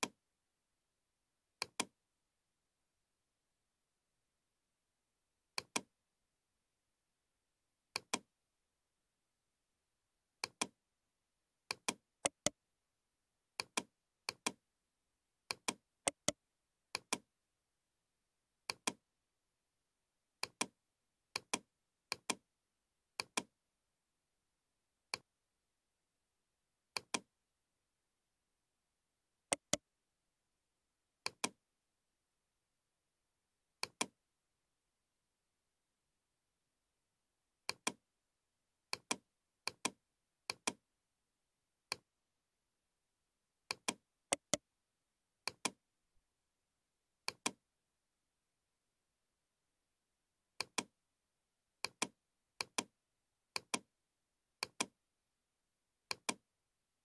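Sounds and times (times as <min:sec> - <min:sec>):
computer mouse button clicks: 0:01.6 - 0:01.9, 0:05.6 - 0:05.9, 0:11.7 - 0:12.5, 0:15.5 - 0:16.4, 0:27.0 - 0:27.3, 0:29.5 - 0:29.8, 0:43.7 - 0:44.6, 0:47.3 - 0:47.6, 0:50.6 - 0:50.9, 0:51.8 - 0:52.9, 0:53.6 - 0:53.9, 0:54.6 - 0:54.9, 0:56.1 - 0:56.4.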